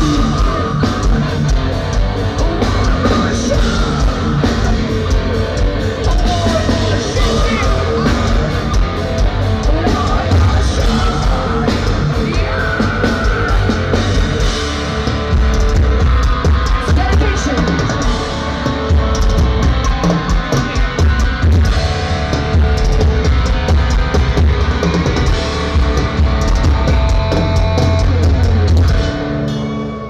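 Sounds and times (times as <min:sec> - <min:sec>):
fast drumming: 0:00.0 - 0:29.5
distorted electric guitar: 0:00.0 - 0:30.0.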